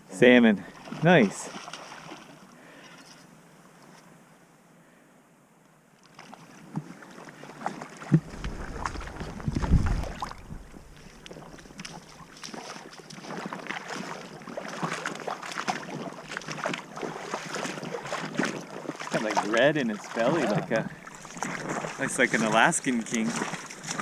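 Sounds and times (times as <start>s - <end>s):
fish thrashing in shallow water: 7.6s - 20.2s, 20.9s - 24.0s
wind buffeting microphone: 8.2s - 12.3s, 20.9s - 22.6s.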